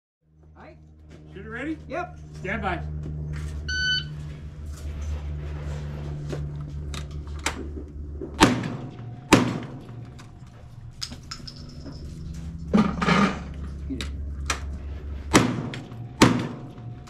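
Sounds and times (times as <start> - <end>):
rifle shots: 8.4 - 9.8, 15.3 - 16.7
gun handling clicks and knocks: 9.8 - 12.9.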